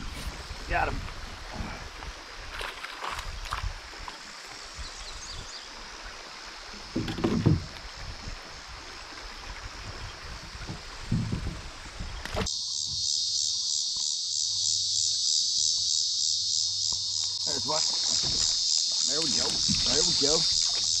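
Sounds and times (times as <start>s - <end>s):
shallow creek water rushing: 0.0s - 12.5s, 17.0s - 21.0s
insects chorus: 0.0s - 21.0s
kayak thumps: 6.9s - 7.9s, 17.9s - 18.6s, 19.2s - 21.0s.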